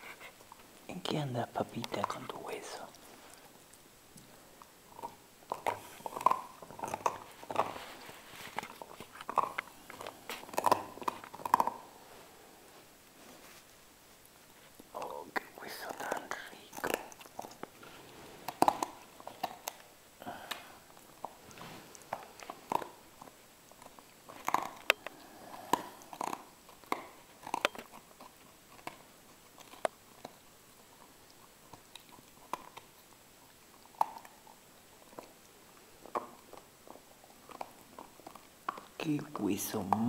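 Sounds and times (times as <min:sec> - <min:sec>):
dog gnawing a bone: 0:00.0 - 0:40.0.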